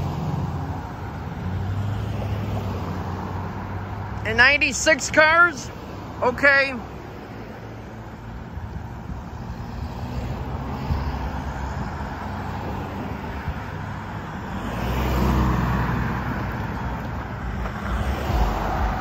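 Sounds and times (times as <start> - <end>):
vehicles driving over railroad crossing: 0.0 - 19.0.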